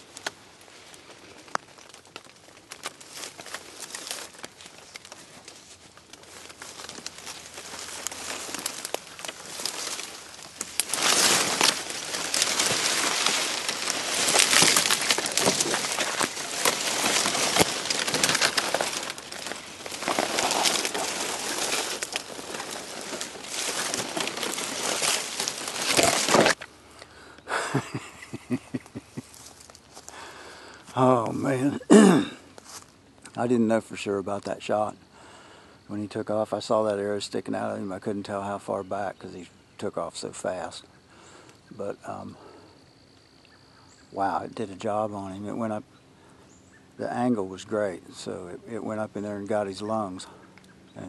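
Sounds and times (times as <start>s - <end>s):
dry fronds scraping: 0.0s - 27.0s, 28.0s - 33.0s, 43.9s - 51.0s
dead leaves crunching underfoot: 0.0s - 33.1s.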